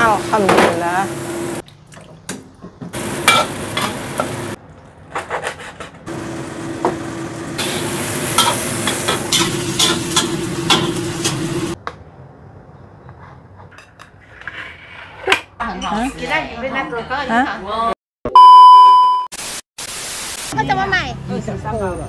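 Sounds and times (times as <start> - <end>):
wok stir-fry sizzling: 2.9 - 4.6, 6.1 - 11.8.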